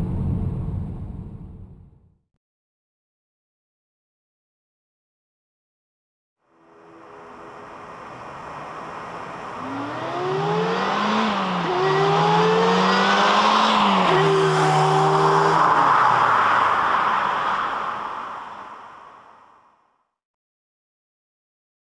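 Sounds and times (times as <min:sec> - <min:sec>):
car engine accelerating hard: 0:07.5 - 0:19.0.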